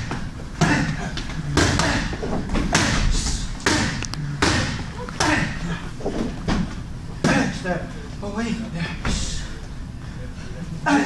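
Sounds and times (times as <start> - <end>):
boxing gloves striking mitts: 0.0 - 5.5.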